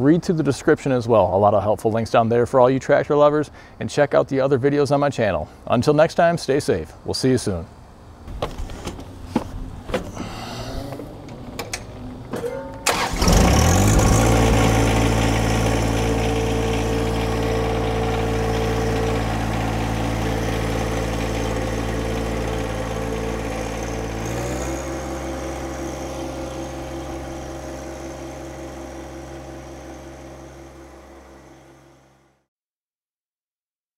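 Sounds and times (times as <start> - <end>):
tractor diesel engine running: 8.4 - 32.2.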